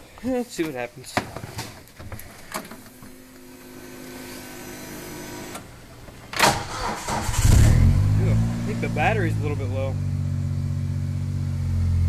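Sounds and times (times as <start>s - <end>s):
fuel pump electric hum: 2.5s - 12.0s
engine starter burst: 6.4s - 8.1s.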